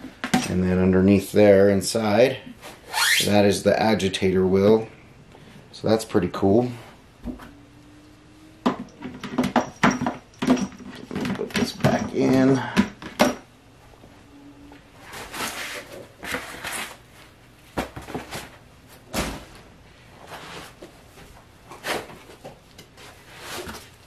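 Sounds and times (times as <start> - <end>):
plastic and foam handling rustles: 15.0 - 24.0
heavy thump: 19.1 - 19.6.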